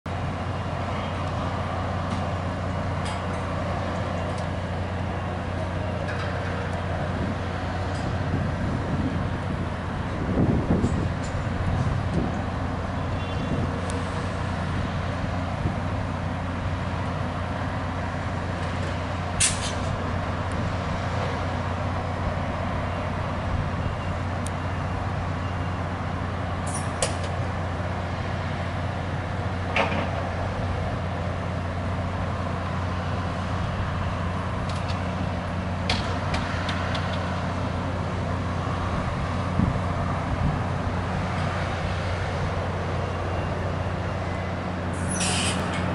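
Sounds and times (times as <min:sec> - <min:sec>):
diesel engines idling: 0:00.1 - 0:45.9
air brake hisses: 0:45.0 - 0:45.8.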